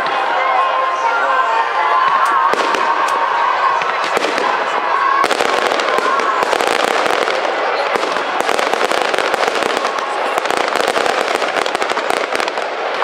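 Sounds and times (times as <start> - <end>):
fireworks bangs and crackles: 2.0 - 13.0.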